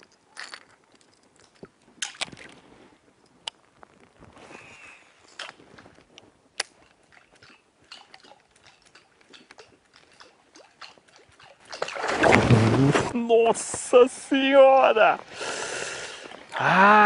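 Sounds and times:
small splashes and clicks on water: 0.0 - 2.6, 6.6 - 12.3.

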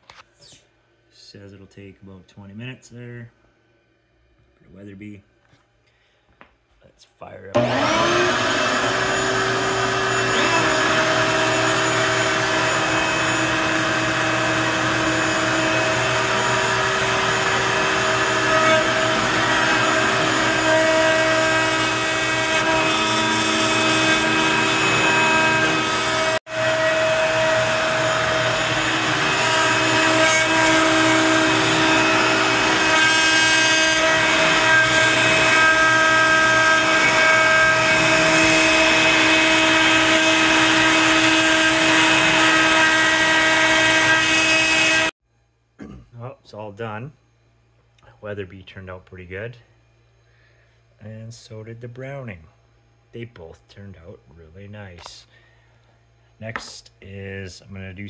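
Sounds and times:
router motor whine: 7.6 - 45.1.

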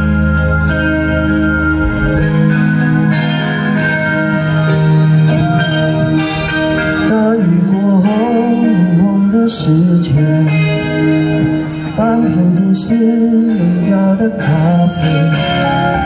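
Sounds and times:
gliding melody line: 0.0 - 16.0
guitar accompaniment: 0.0 - 16.0.

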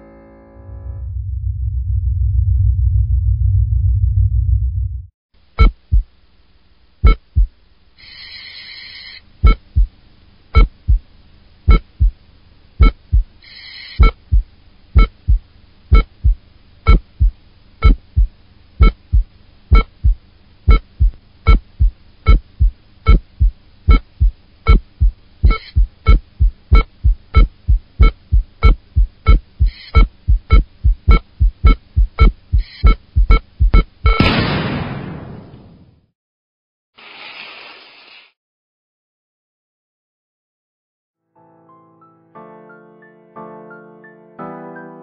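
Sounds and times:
noisy buzzing bursts: 5.4 - 34.2
heartbeat thumps: 5.6 - 6.2, 7.0 - 7.6, 9.4 - 10.0, 10.6 - 11.1, 11.7 - 12.2, 12.8 - 13.4, 14.0 - 34.2.

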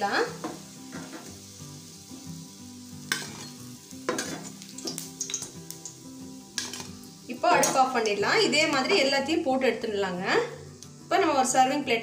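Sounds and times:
cutlets sizzling in oil: 0.0 - 12.0
spatula scraping metal pan: 3.1 - 4.6.

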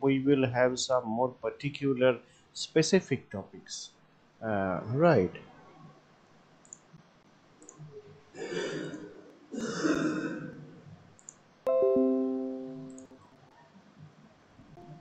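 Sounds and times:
computer notification chime: 11.7 - 13.2.

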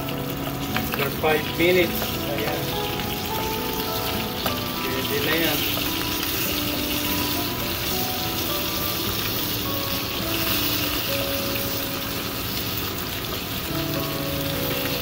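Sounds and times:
fish sizzling in hot oil: 0.0 - 15.0
soft background music: 0.0 - 15.0.

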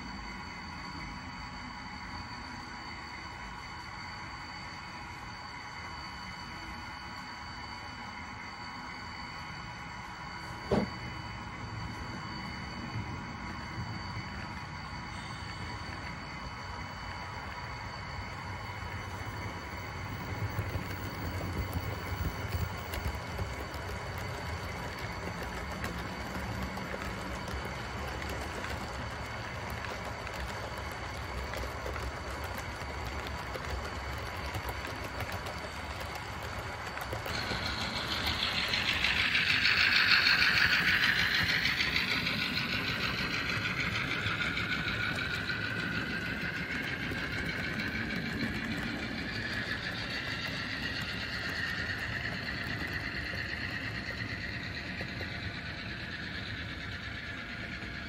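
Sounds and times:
model train wheels rattling: 10.0 - 58.0
high-pitched wavering squeal: 37.2 - 58.0.

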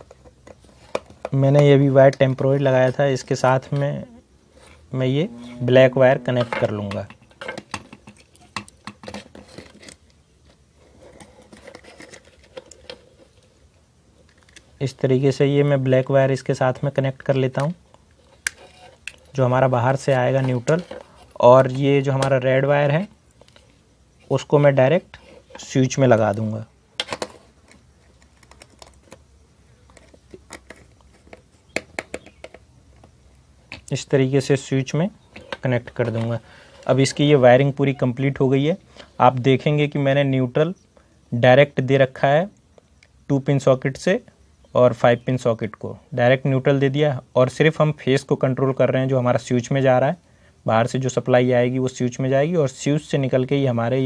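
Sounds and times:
wires being twisted by hand: 17.2 - 22.5.

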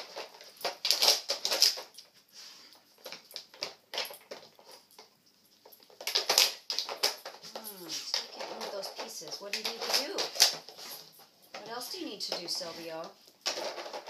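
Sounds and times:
plastic pieces clicking: 0.0 - 2.1, 5.7 - 10.8, 11.4 - 14.0.

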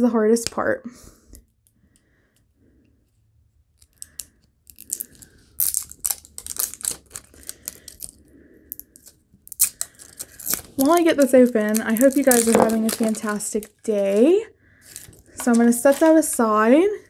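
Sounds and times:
plastic wrapping crackling: 3.8 - 16.4.

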